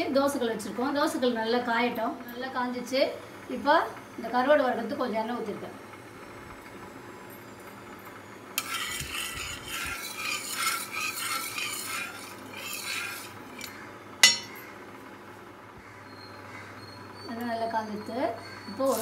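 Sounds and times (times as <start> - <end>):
metal spatula scraping griddle: 8.6 - 14.5, 18.8 - 19.0
sharp metallic clink: 14.2 - 14.6.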